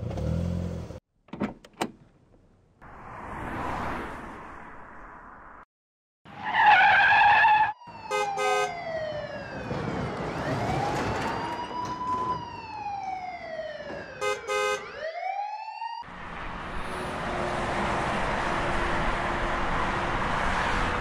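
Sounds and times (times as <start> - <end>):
road traffic noise: 0.0 - 5.7, 6.3 - 15.1, 16.0 - 21.0
police siren wailing: 6.6 - 16.1
car horn double beep: 8.1 - 8.7, 14.2 - 14.8.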